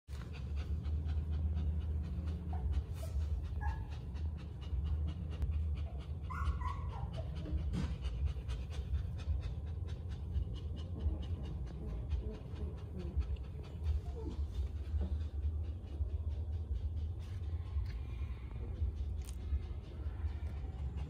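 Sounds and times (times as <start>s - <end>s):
dog panting fast: 0.1s - 21.0s
steady low hum: 0.1s - 21.0s
dog whining: 5.8s - 7.7s, 10.8s - 15.8s.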